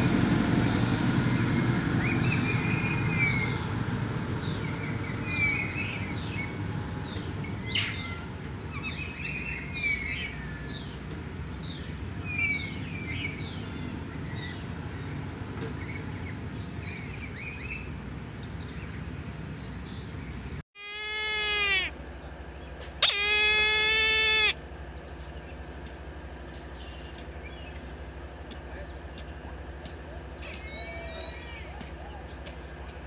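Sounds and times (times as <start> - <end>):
outdoor ambience: 0.0 - 33.0
songbird chirps: 4.5 - 33.0
kite calls: 20.8 - 22.0, 23.0 - 24.6.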